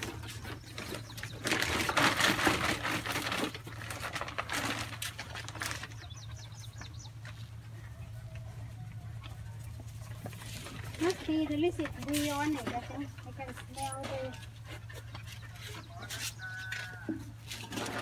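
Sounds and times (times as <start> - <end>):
bird chirping: 0.0 - 2.1, 5.8 - 8.4
close rustling and scuffling: 0.0 - 18.0.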